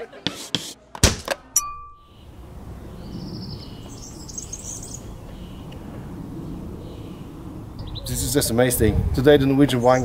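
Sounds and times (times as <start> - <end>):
bright ding: 1.6 - 2.2
birds chirping: 2.0 - 8.6, 9.5 - 10.0.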